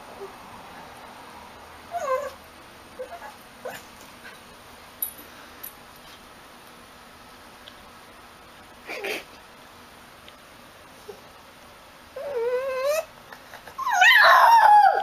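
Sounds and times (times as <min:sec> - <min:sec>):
dog whining: 0:01.9 - 0:02.4, 0:03.0 - 0:03.9, 0:12.1 - 0:15.0
dog yipping: 0:13.8 - 0:15.0.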